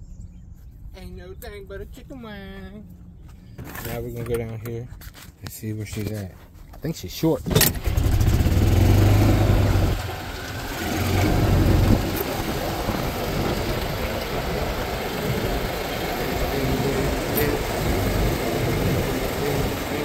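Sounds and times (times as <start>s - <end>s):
golf cart driving: 7.5s - 20.0s
low hum: 7.8s - 20.0s.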